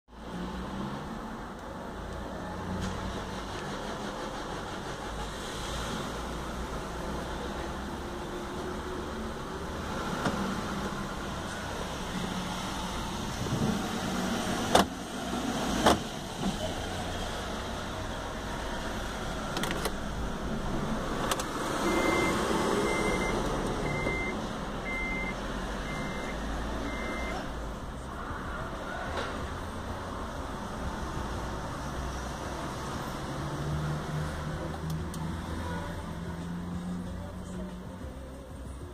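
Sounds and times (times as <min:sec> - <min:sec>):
short electronic beeps: 0:21.8 - 0:27.4.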